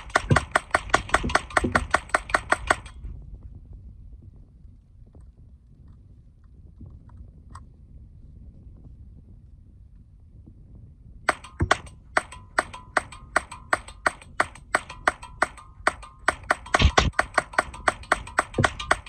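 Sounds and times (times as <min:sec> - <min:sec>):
rifle shots: 0:00.0 - 0:03.0, 0:11.3 - 0:19.0.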